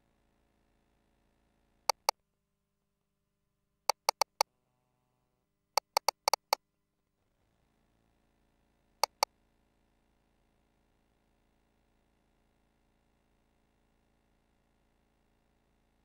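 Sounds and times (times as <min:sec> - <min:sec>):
key clicks: 0:01.9 - 0:02.1, 0:03.9 - 0:04.4, 0:05.8 - 0:06.6, 0:09.0 - 0:09.2.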